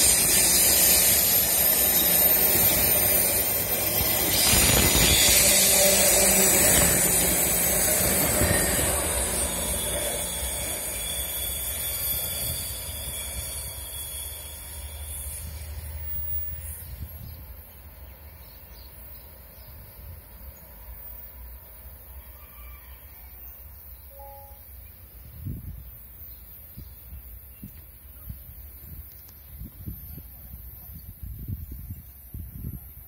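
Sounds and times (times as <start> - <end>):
train wheels rolling on rails: 0.0 - 22.0.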